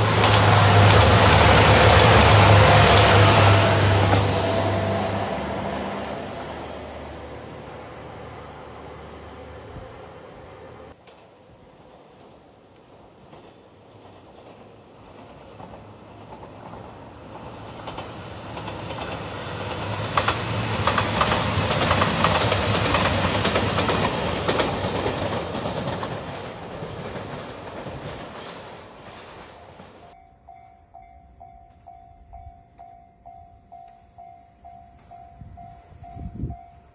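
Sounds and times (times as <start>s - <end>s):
diesel train passing: 0.0s - 36.9s
wheels clattering over rail joints: 17.7s - 30.2s.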